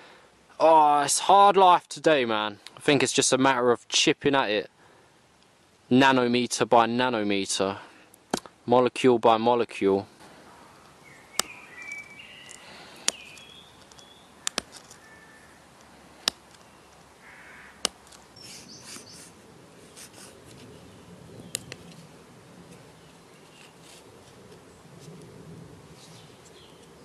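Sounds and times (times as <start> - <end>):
faint birds chirping: 10.0 - 25.2, 25.9 - 27.0
stone flaking clicks and snaps: 11.4 - 15.0, 15.8 - 17.1, 17.8 - 18.2, 21.5 - 22.0.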